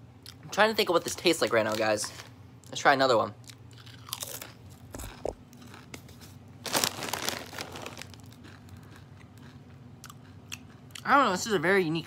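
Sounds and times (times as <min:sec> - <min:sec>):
chip bag crinkling: 0:00.9 - 0:02.4, 0:03.5 - 0:09.6.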